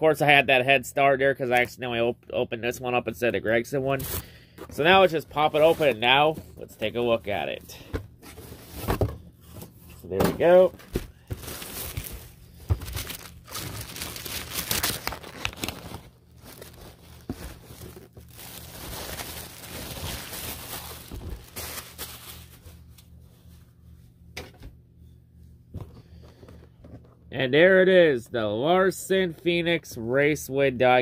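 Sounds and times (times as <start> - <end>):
plastic packaging crinkling: 11.2 - 23.0.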